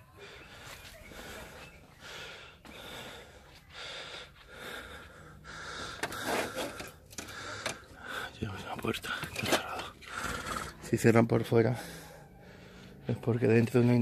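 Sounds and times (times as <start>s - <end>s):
person breathing heavily: 0.0s - 10.9s, 11.6s - 13.2s.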